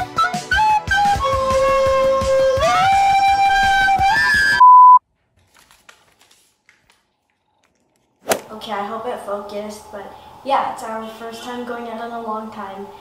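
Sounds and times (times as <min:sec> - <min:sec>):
loud steady beep: 0:04.6 - 0:05.0.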